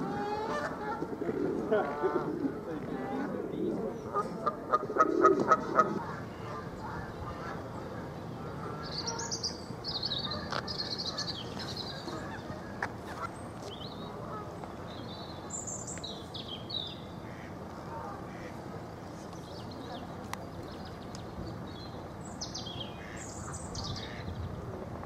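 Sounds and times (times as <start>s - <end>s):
birds chirping: 0.0s - 17.6s
steady background hiss: 0.0s - 25.0s.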